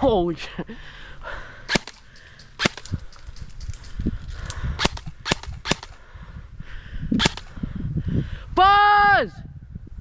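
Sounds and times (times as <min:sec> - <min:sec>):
airsoft gun shots: 0:01.7 - 0:03.2, 0:04.8 - 0:06.0, 0:07.2 - 0:07.5.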